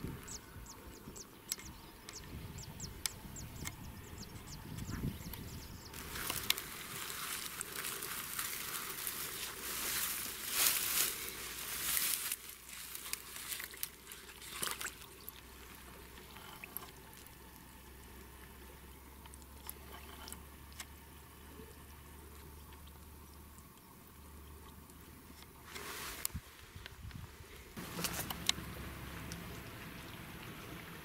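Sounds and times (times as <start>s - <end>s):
low steady hum: 0.0s - 31.0s
rustling in grass: 5.9s - 15.4s, 25.6s - 28.5s.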